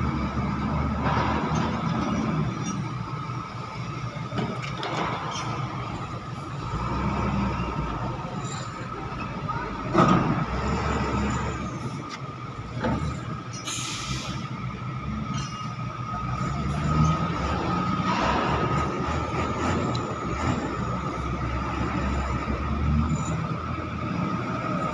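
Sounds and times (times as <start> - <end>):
diesel engines rumbling: 0.0 - 24.9
air hiss burst: 13.7 - 14.4.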